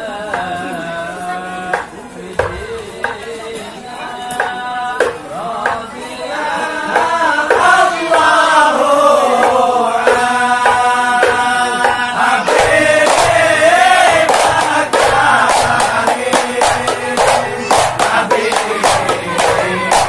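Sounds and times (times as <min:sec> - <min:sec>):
men singing a devotional chant: 0:00.0 - 0:20.0
frame drum strokes: 0:09.4 - 0:20.0.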